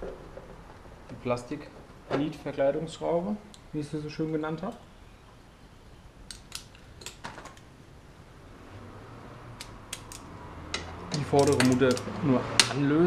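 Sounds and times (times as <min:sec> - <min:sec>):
clicks and taps of hand tools: 0:09.6 - 0:12.8.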